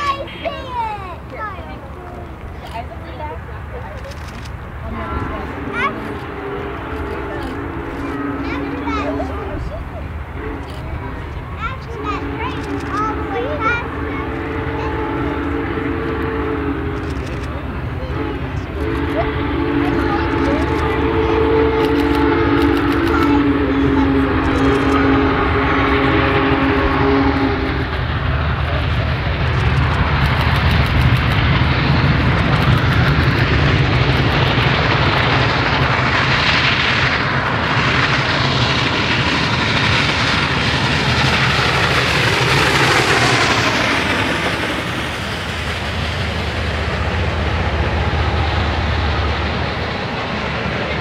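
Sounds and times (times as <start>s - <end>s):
steam locomotive roaring past: 0.0s - 51.0s
multi-note train whistle: 5.1s - 9.3s, 11.9s - 28.0s.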